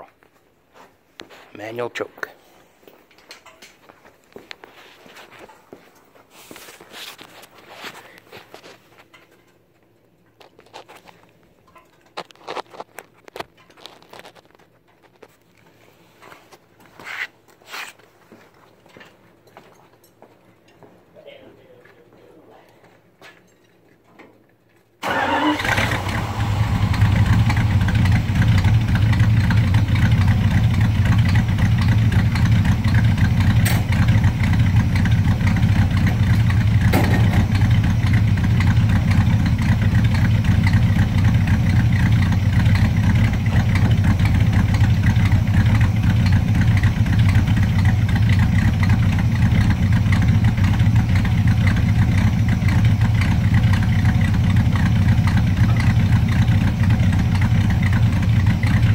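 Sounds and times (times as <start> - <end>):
truck engine starting and idling: 25.0 - 58.9.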